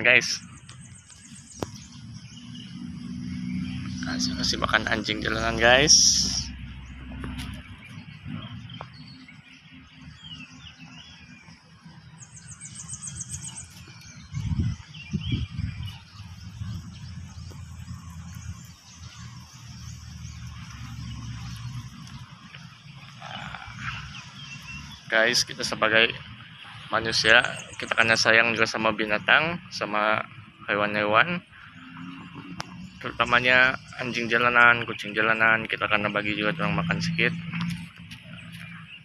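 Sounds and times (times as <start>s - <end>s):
faint bird chirps: 0.0s - 39.0s
wind rumble: 0.0s - 39.0s
dull low thumps: 11.5s - 28.0s
microphone handling noise: 13.5s - 17.6s.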